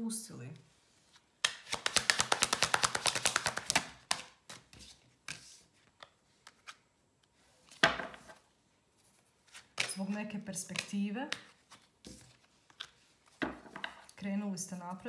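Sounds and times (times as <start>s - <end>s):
cards being shuffled: 1.0s - 6.8s, 9.0s - 14.2s
cards slapped on wooden table: 1.4s - 4.7s, 7.8s - 8.4s.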